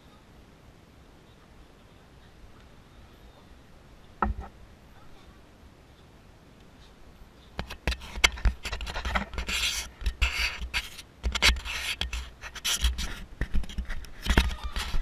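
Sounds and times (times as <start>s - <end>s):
camera handling scratching: 7.6s - 15.0s.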